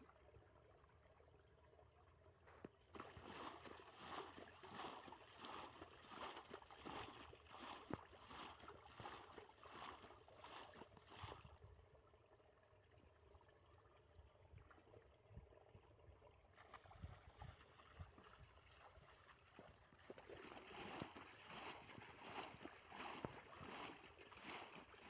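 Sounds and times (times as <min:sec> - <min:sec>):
muddy water splashes: 0:00.0 - 0:25.0.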